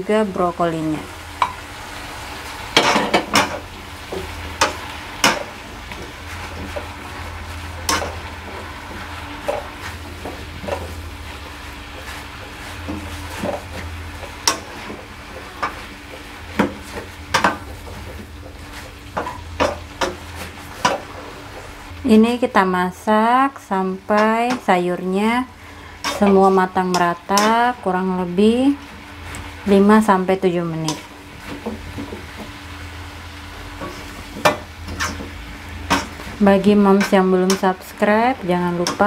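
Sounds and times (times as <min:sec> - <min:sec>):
vegetables sizzling in oil: 0:00.0 - 0:39.0
spatula scraping a wok: 0:01.4 - 0:22.0, 0:25.5 - 0:27.8, 0:30.9 - 0:39.0.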